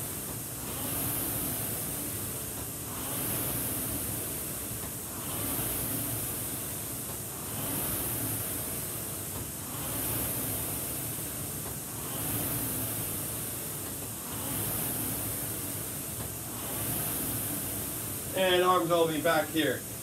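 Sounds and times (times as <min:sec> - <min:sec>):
rowing machine flywheel whooshing: 0:00.0 - 0:20.0.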